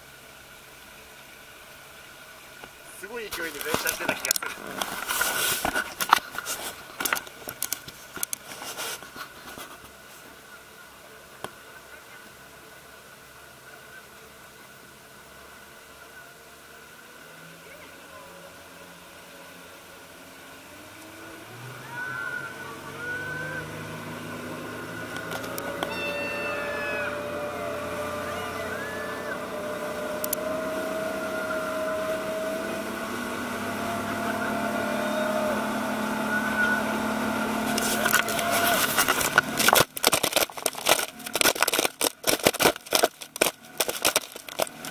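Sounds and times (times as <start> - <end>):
boat engine running: 0.0 - 44.9
water rushing along hull: 0.0 - 44.9.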